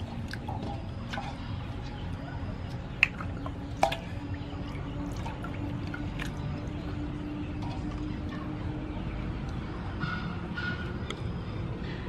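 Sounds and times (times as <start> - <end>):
water sloshing in metal basin: 0.0 - 8.6
faint steady hum: 0.0 - 12.0.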